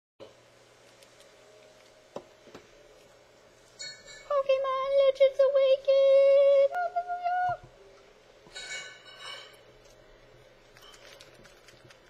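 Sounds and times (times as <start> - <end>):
foil pack crinkling: 9.8 - 12.0.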